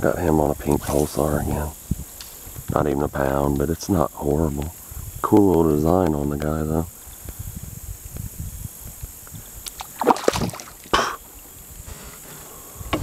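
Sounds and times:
fish splashing in water: 9.8s - 10.9s.

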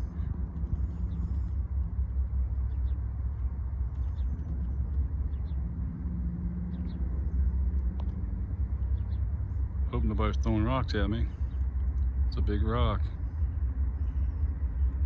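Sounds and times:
distant diesel locomotive rumble: 0.0s - 15.0s.

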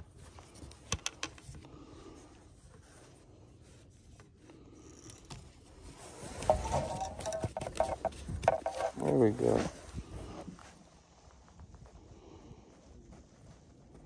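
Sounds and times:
rubbing and scraping of gear: 2.7s - 11.3s.

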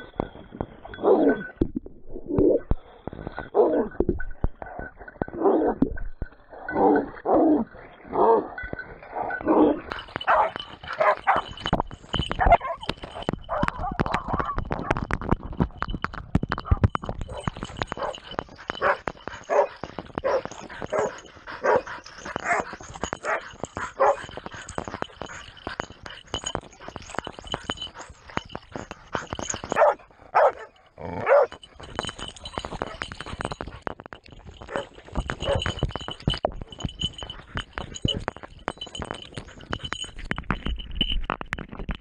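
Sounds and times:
hounds barking: 6.7s - 11.6s, 17.3s - 25.9s, 29.3s - 31.7s, 34.6s - 35.8s.

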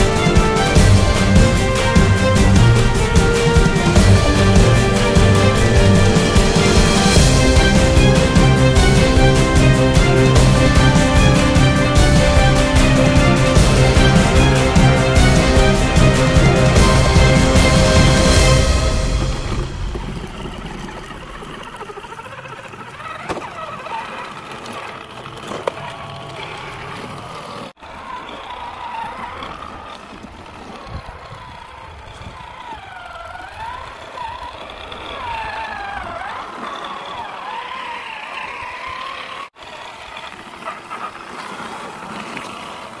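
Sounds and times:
wavering whirring: 0.0s - 40.4s
toy trucks rolling through sand: 17.9s - 43.0s.

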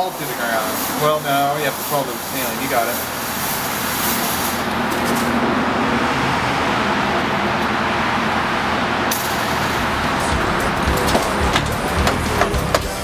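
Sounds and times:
fog machine hissing: 0.0s - 5.3s, 9.1s - 13.0s
steady rushing noise: 0.0s - 13.0s.

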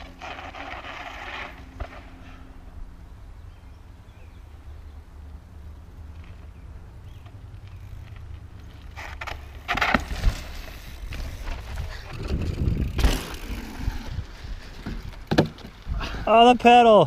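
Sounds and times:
bike rattling over bumps: 0.0s - 2.5s, 5.6s - 16.3s
bike tyres on dirt: 0.0s - 17.0s.

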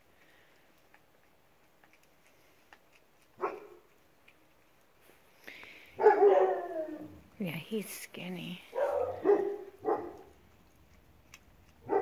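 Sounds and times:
dog barking: 3.4s - 3.8s, 6.0s - 7.0s, 8.7s - 10.3s, 11.8s - 12.0s.

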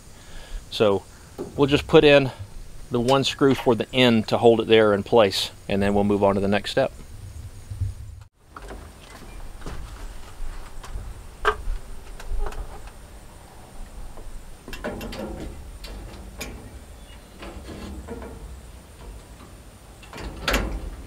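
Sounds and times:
metal frame parts clicking: 14.7s - 21.0s.

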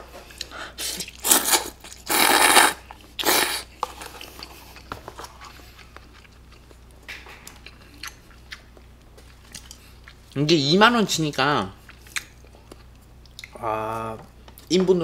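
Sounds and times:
chewing with wet clicks: 0.4s - 2.1s, 2.8s - 10.5s, 11.1s - 13.6s
person slurping noodles: 0.8s - 3.7s.

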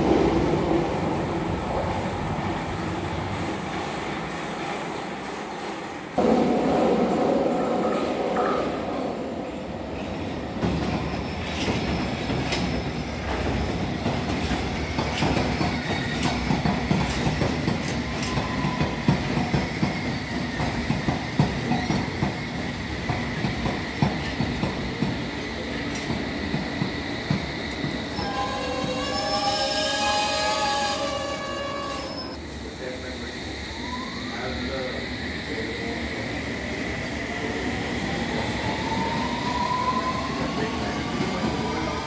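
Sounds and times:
train wheels clacking over rail joints: 10.6s - 25.2s.

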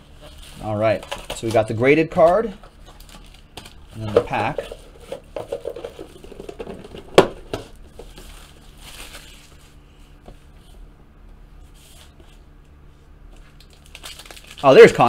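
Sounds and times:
cardboard and foil rustling: 0.0s - 10.2s, 13.3s - 15.0s
low steady hum: 0.0s - 15.0s.

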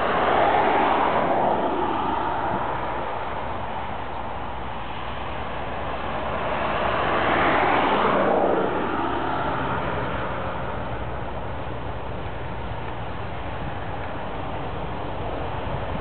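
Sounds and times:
locomotive engine rumble: 9.6s - 16.0s.

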